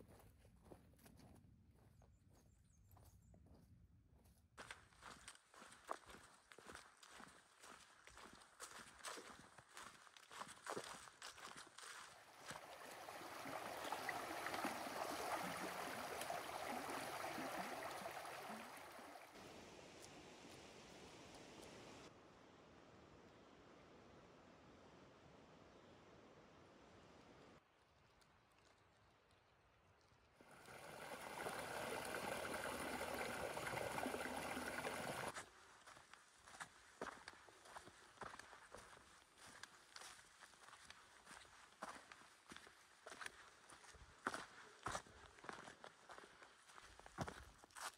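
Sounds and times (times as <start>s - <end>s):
rushing creek water: 10.6s - 22.1s, 30.4s - 35.4s.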